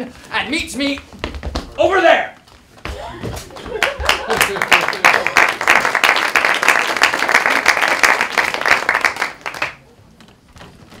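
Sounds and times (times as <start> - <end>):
audience applauding: 3.6 - 9.8.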